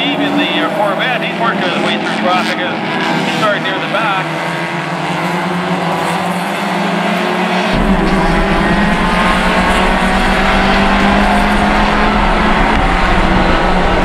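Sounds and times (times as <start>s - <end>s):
race car engine running hard: 0.0s - 14.0s
deep low rumble: 7.7s - 14.0s.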